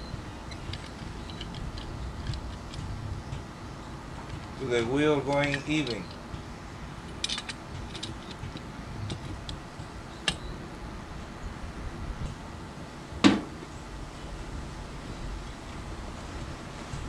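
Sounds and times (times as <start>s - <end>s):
metallic clicks of steel tubes: 0.4s - 3.5s, 4.2s - 6.4s, 7.0s - 10.4s
loud knock: 13.2s - 13.5s.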